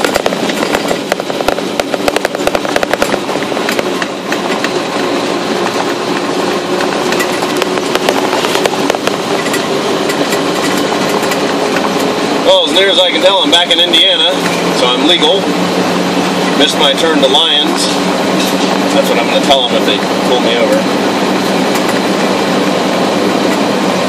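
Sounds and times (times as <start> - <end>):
tyres crunching over gravel: 0.0 - 15.4.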